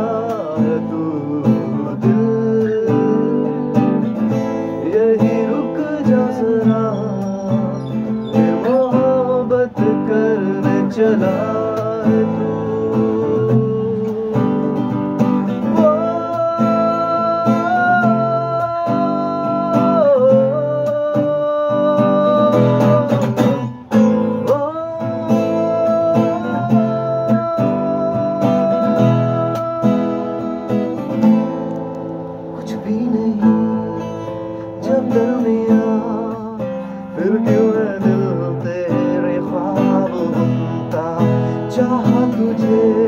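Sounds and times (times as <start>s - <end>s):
acoustic guitar strumming: 0.0s - 43.0s
man singing wordless melody: 0.0s - 43.0s.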